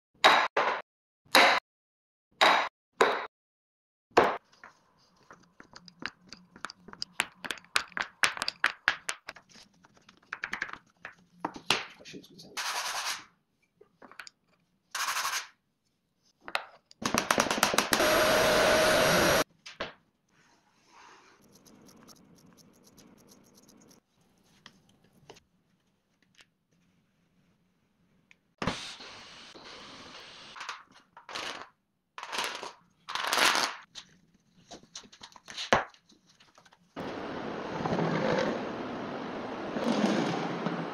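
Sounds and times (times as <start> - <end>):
cordless drill boring into wood: 17.9 - 19.4
orbital sander whirring hiss: 18.0 - 19.4.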